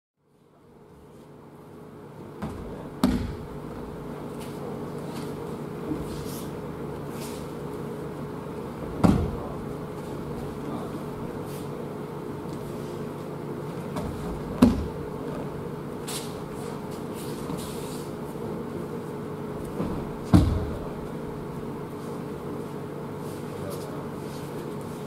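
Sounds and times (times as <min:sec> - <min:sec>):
steady low hum: 0:00.2 - 0:25.0
body thumping on mats: 0:02.4 - 0:04.0, 0:08.9 - 0:09.6, 0:13.8 - 0:15.6, 0:19.6 - 0:21.1.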